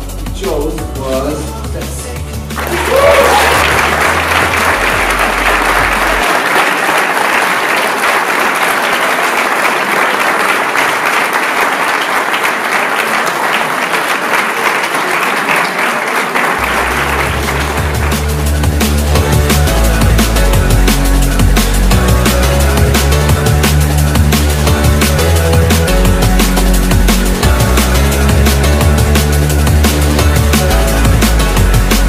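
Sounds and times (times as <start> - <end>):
audience applauding: 2.6 - 26.2.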